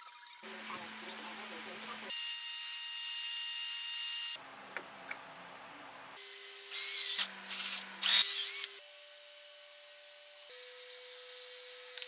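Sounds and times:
electric drill boring into wood: 6.7 - 8.8.

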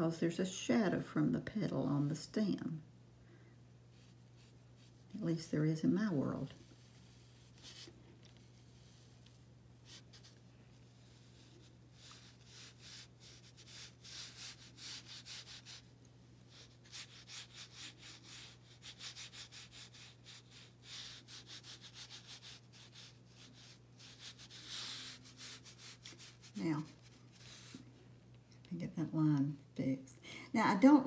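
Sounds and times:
low steady hum: 0.0 - 31.0
paintbrush scratching on paper: 3.9 - 5.4, 6.5 - 15.9, 16.5 - 27.9.

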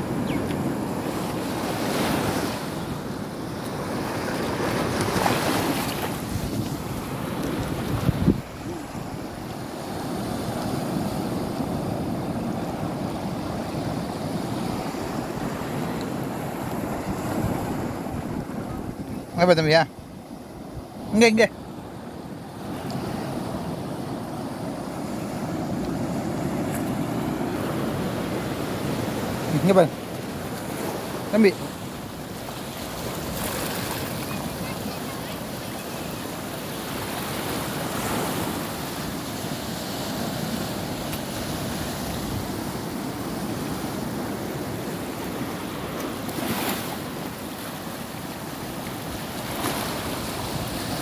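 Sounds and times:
sea waves washing against rocks: 0.0 - 19.8, 22.6 - 51.0
wind buffeting microphone: 6.2 - 10.0, 14.0 - 19.3.

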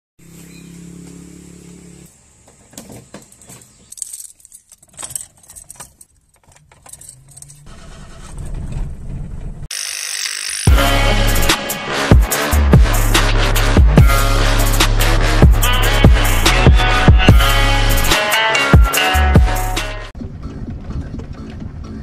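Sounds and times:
keys jangling and clicking: 3.3 - 7.7
electronic intro music: 10.6 - 20.1.

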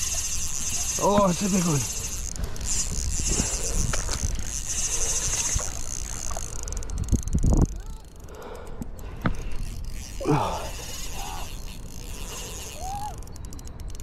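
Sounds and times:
insects buzzing: 0.0 - 7.6, 8.4 - 13.8.

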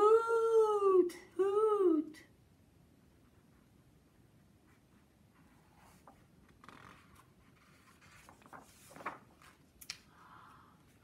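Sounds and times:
paper pages rustling: 5.3 - 10.1.

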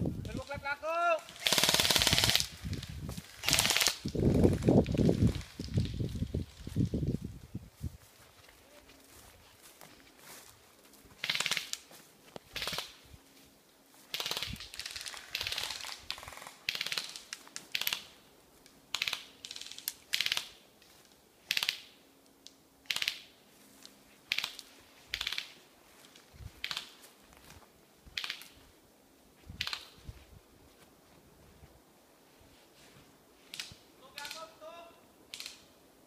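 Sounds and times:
rustling through vegetation: 0.0 - 36.0
footsteps on dry forest floor: 2.4 - 16.4, 23.4 - 33.5.

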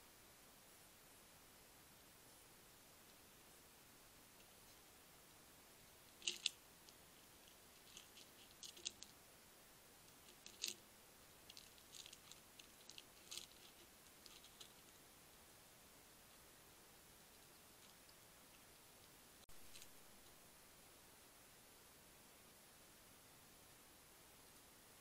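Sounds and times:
hedgehog crunching biscuits: 6.1 - 9.1, 10.1 - 10.8, 11.4 - 15.0.

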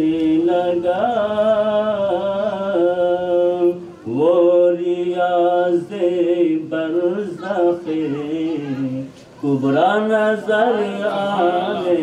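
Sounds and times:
man singing through microphone: 0.0 - 12.0.

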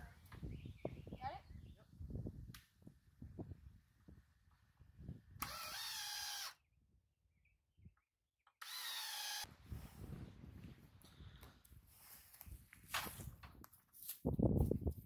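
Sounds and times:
power drill drilling into timber: 5.4 - 6.6, 8.6 - 9.5.

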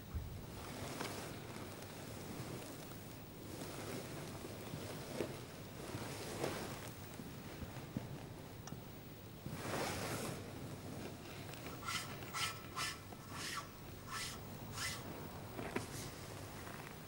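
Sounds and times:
cloth rustling: 0.5 - 8.6, 9.4 - 17.0
metal paten scraping cloth: 11.0 - 16.9.

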